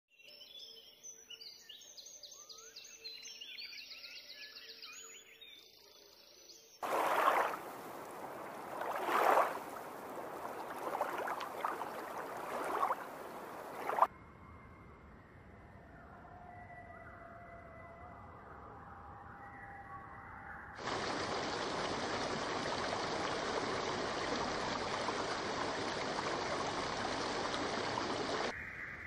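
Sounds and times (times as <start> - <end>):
songbirds chirping and trilling: 0.2 - 14.1.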